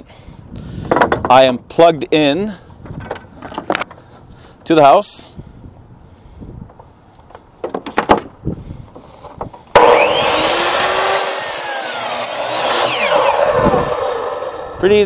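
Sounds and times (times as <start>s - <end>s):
miter saw cutting wood: 9.7s - 15.0s.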